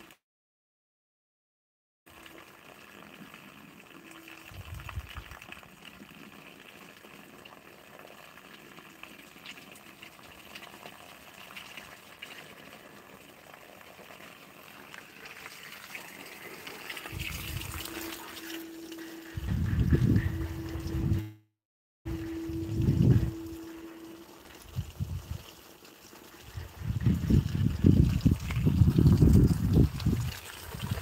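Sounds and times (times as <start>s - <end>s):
microphone handling rumble: 19.4s - 21.4s
faint steady hiss: 22.1s - 26.6s.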